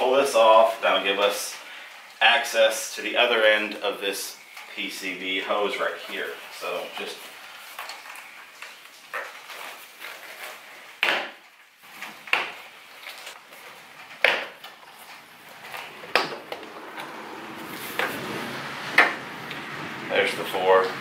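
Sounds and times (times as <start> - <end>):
handling rustle: 3.2 - 18.3.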